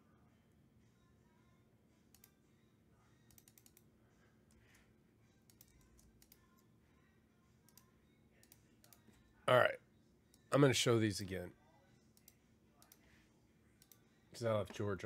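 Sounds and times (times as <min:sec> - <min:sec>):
keyboard typing: 0:03.3 - 0:03.8, 0:05.5 - 0:06.6.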